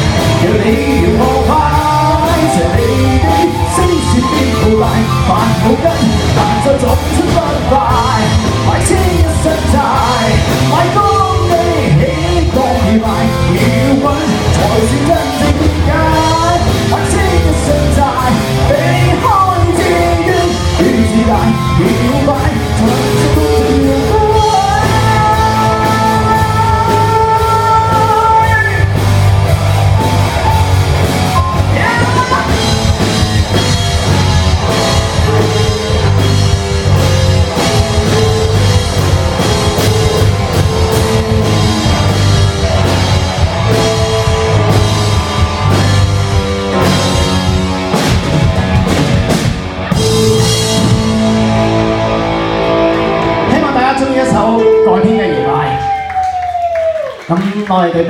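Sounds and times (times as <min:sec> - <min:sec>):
person singing: 0:00.0 - 0:29.0, 0:31.3 - 0:36.2, 0:53.4 - 0:56.5
electric guitar: 0:00.0 - 0:57.4
bass guitar: 0:00.0 - 0:58.0
drums: 0:00.0 - 0:58.0.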